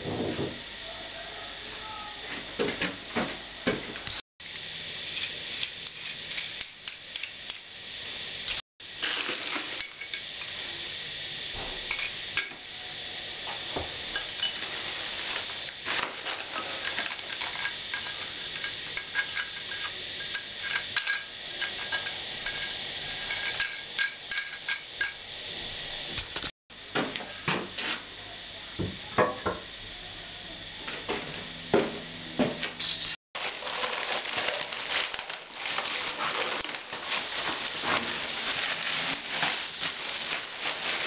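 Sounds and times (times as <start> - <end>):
steady hiss: 4.4 - 31.4, 32.8 - 41.0
plastic wrapping rustling: 9.0 - 9.9, 14.5 - 17.6, 33.4 - 41.0.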